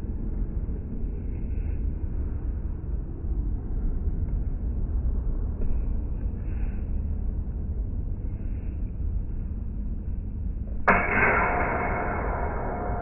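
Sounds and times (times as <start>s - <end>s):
low steady rumble: 0.0s - 13.0s
metallic clash with long ringing: 10.9s - 13.0s.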